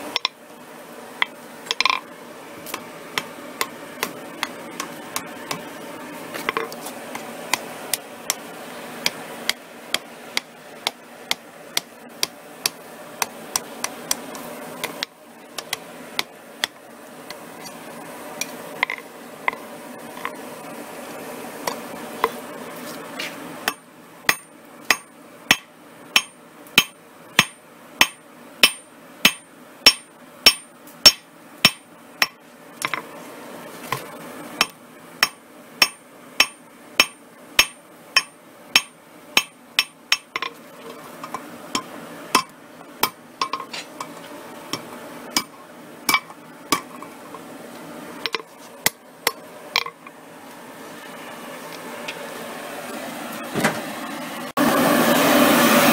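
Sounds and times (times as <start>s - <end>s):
hammer ringing on anvil: 23.7s - 32.4s, 34.6s - 40.5s.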